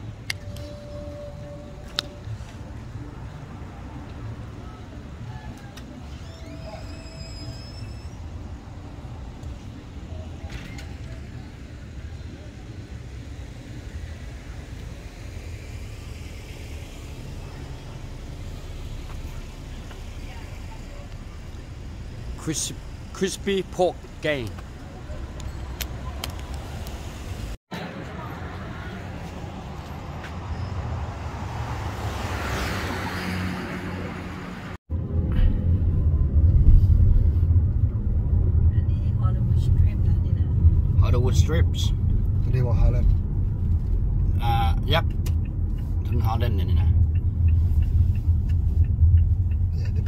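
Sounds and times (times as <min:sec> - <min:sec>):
car road rumble: 0:00.0 - 0:50.0
street traffic: 0:00.0 - 0:50.0
car passing: 0:13.2 - 0:50.0
car driving interior rumble: 0:34.9 - 0:50.0.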